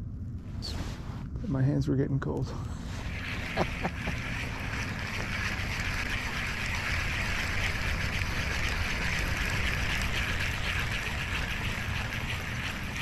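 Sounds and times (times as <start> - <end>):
wind rumbling on microphone: 2.8 - 13.0
fishing reel whirring: 3.0 - 13.0.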